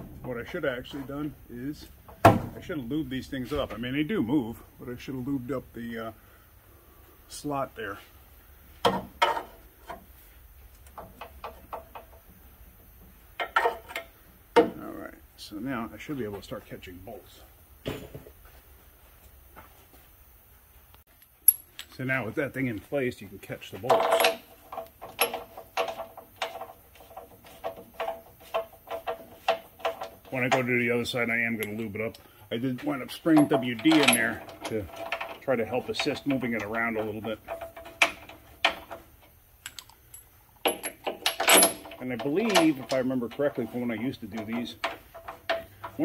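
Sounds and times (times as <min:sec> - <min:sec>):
metal clanks and knocks: 0:00.0 - 0:04.0, 0:08.8 - 0:10.1, 0:10.8 - 0:12.4, 0:13.3 - 0:14.8, 0:17.8 - 0:18.4, 0:23.7 - 0:46.0
metal bolt clinking: 0:13.4 - 0:14.8, 0:21.2 - 0:22.1, 0:23.8 - 0:32.2, 0:32.8 - 0:46.0.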